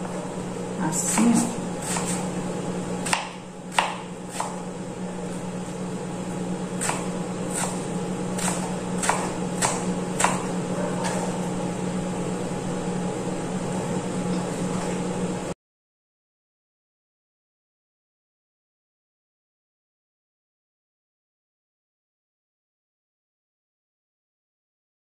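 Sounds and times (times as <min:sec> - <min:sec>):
steady low hum: 0:00.0 - 0:15.6.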